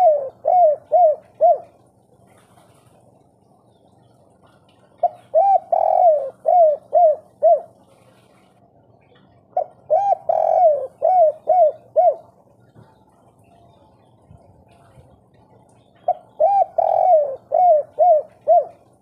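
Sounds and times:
dove cooing: 0.0 - 2.3, 4.3 - 8.0, 9.4 - 12.8, 15.8 - 19.0.

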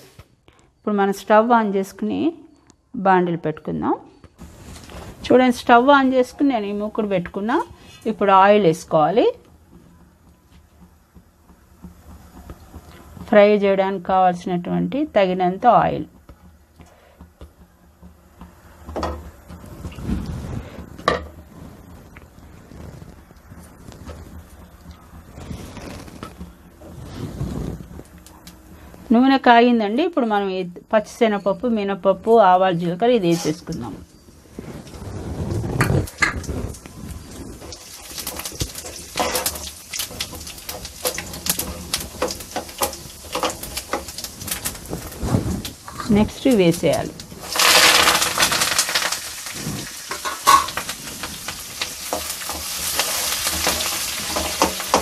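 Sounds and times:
seeds sizzling and popping in oil: 4.2 - 55.0
small kitchen clicks: 35.8 - 55.0
spoon scraping and tapping pan: 37.3 - 45.2, 50.1 - 55.0.

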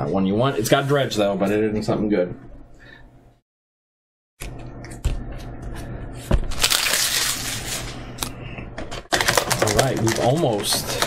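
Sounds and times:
foil wrapper crinkling and tearing: 6.5 - 8.3, 9.1 - 11.0.

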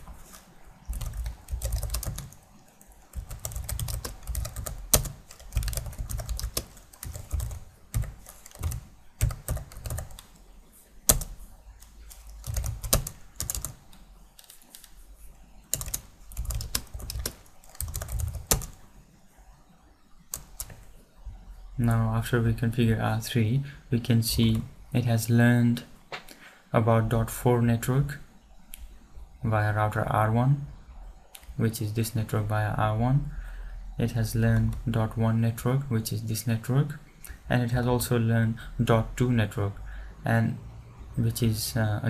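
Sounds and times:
computer keyboard typing: 0.8 - 10.4, 11.1 - 15.0, 15.7 - 18.8, 20.3 - 20.8.

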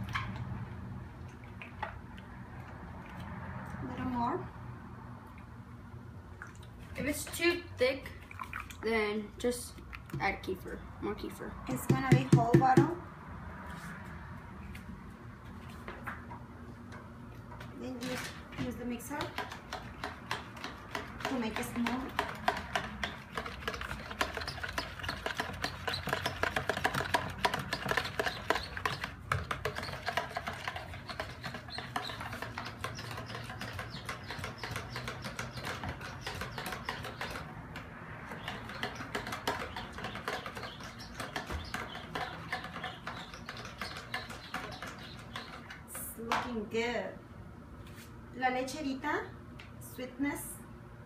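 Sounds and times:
spoon scraping plastic bowl: 19.2 - 46.0.

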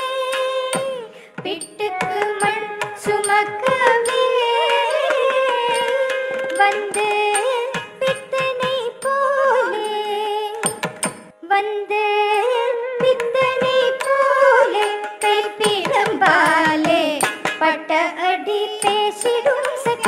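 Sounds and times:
woman singing ornamented melody: 0.0 - 10.7, 11.4 - 20.0
sharp percussion strokes: 1.6 - 9.2.

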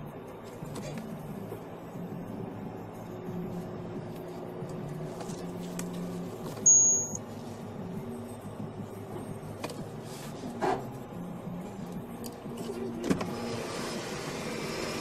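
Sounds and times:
road and engine hum in car: 0.0 - 15.0
high-pitched electronic beep: 6.6 - 7.2.

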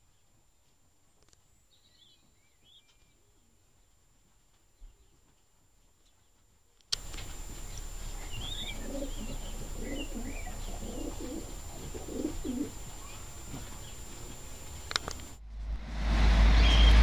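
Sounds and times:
high squeaks of pigeon chicks: 7.3 - 14.1
pigeons cooing: 7.3 - 14.8.

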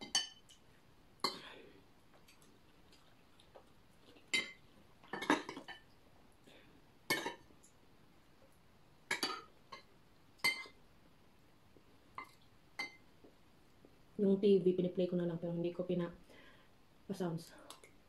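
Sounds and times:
cutlery clinking against plates: 0.0 - 0.6, 4.3 - 5.9, 7.1 - 7.5.

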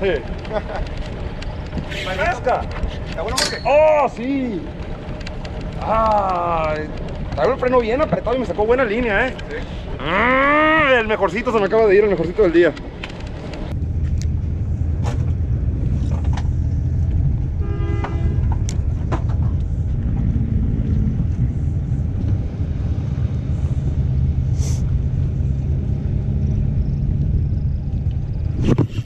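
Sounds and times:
low engine-like rumble: 0.0 - 28.9
short horn tone: 17.6 - 18.6.

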